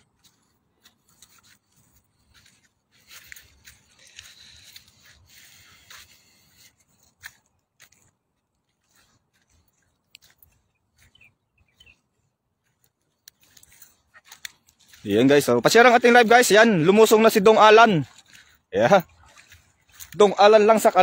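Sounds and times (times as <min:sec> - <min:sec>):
faint bird chirps: 0:10.5 - 0:12.9.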